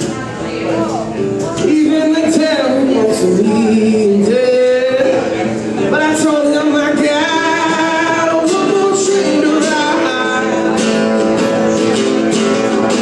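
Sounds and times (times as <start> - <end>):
acoustic guitars strumming: 0.0 - 13.0
man singing into microphone: 1.5 - 13.0.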